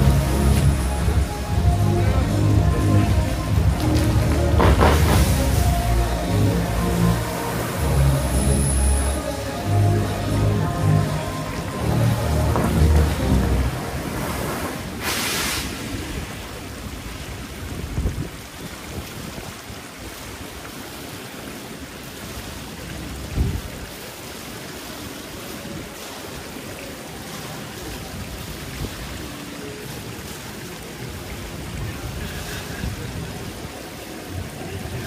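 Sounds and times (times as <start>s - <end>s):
fountain water jets hissing: 0.0s - 35.0s
water splashing: 0.0s - 35.0s
wind buffeting microphone: 15.9s - 19.8s.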